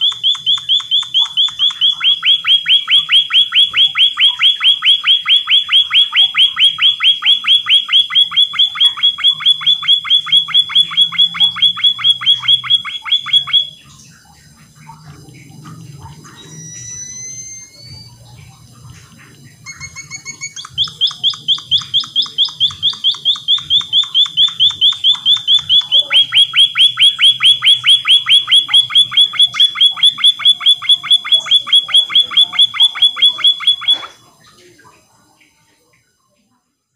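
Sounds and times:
bird rapid repeated notes: 0:00.0 - 0:14.0, 0:19.0 - 0:34.3.

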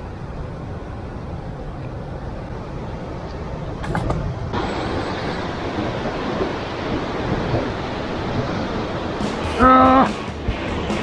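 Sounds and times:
wind rumbling on microphone: 0:00.0 - 0:11.0
surf washing against rocks: 0:04.1 - 0:11.0.

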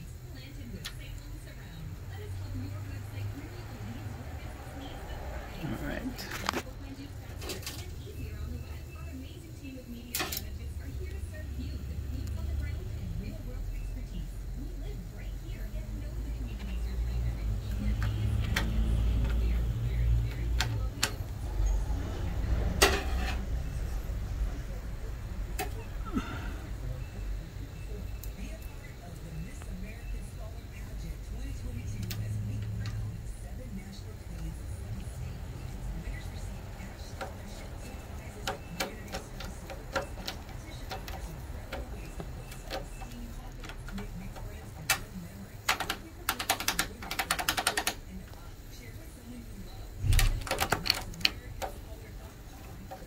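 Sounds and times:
steady low hum: 0:00.0 - 0:53.0
printer parts clicking: 0:07.4 - 0:08.0, 0:10.1 - 0:10.5, 0:17.6 - 0:21.4, 0:36.1 - 0:48.1, 0:50.0 - 0:53.0.

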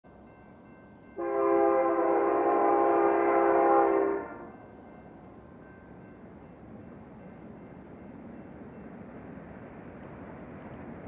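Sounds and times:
faint train rumble: 0:00.1 - 0:11.0
locomotive air horn blast: 0:01.2 - 0:04.6.

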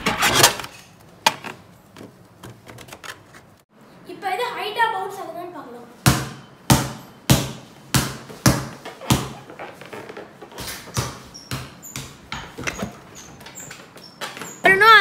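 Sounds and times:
ball bouncing on tiled floor: 0:06.0 - 0:14.6.

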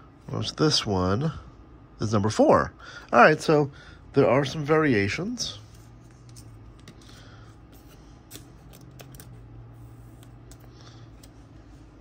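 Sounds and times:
faint low hum: 0:00.0 - 0:12.0
trading cards flipped by hand: 0:05.8 - 0:11.4.

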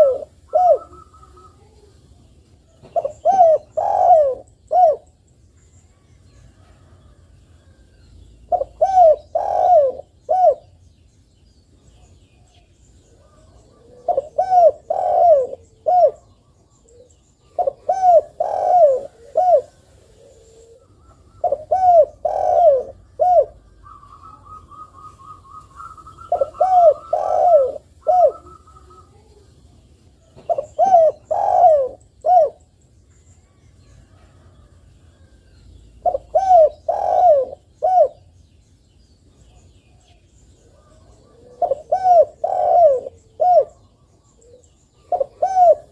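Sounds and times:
dove cooing: 0:00.0 - 0:01.9, 0:02.7 - 0:05.2, 0:08.5 - 0:10.8, 0:13.1 - 0:29.5, 0:30.2 - 0:32.7, 0:36.0 - 0:38.3, 0:40.6 - 0:45.9.

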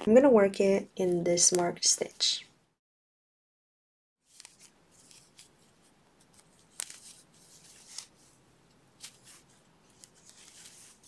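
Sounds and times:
yarn and crochet hook rustling: 0:04.2 - 0:11.0.

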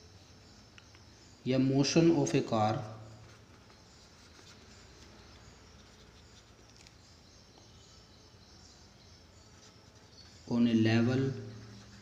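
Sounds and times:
pencil scratching on paper: 0:11.4 - 0:12.0.

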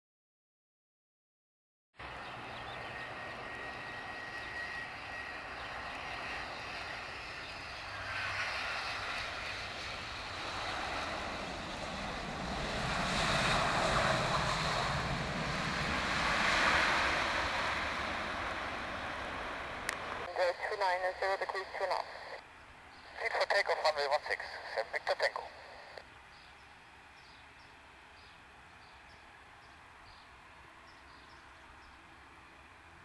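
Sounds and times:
jet engines rushing: 0:02.0 - 0:26.0.

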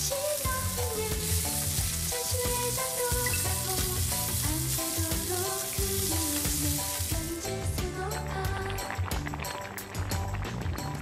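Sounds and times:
steaks sizzling in a pan: 0:00.0 - 0:07.7
background music with steady beat: 0:00.0 - 0:11.0.

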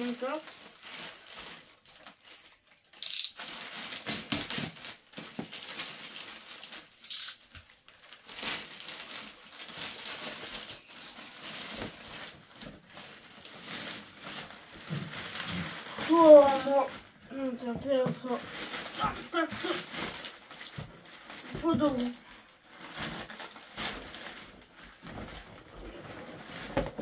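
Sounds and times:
plastic bags rustling and crinkling: 0:00.0 - 0:27.0.

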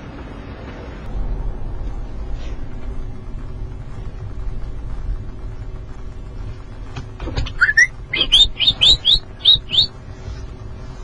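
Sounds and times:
car engine and road rumble: 0:00.0 - 0:11.0
high-pitched chirps: 0:07.5 - 0:09.9.

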